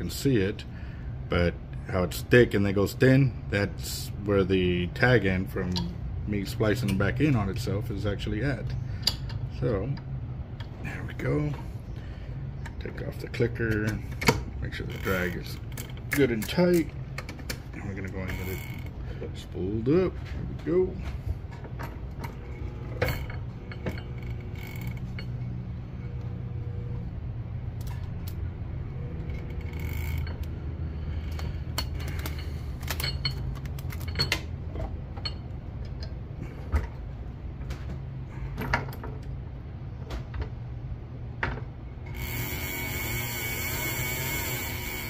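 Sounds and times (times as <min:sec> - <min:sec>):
light clicks and creaks: 0:13.4 - 0:19.2
fishing reel cranking: 0:18.2 - 0:18.9, 0:24.2 - 0:25.2, 0:29.4 - 0:30.5, 0:42.1 - 0:45.0.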